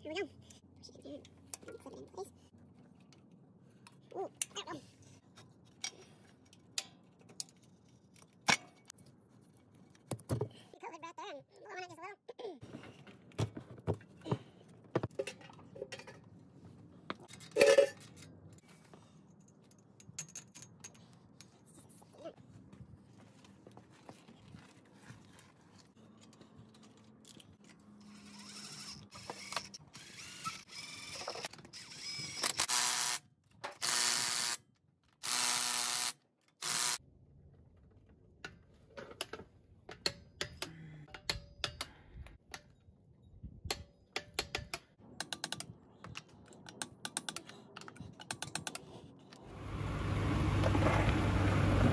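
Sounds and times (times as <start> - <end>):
truck road and engine noise: 49.4 - 51.9.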